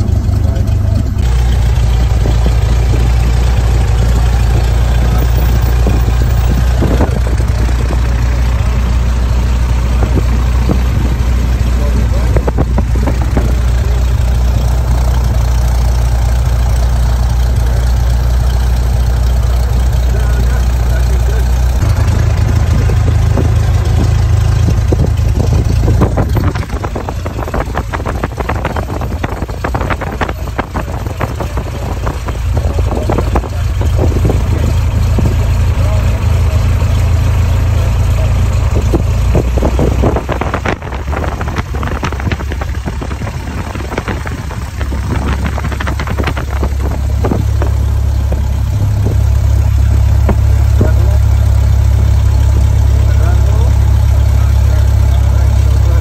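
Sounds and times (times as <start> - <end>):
aircraft engine drone: 0.0 - 38.7.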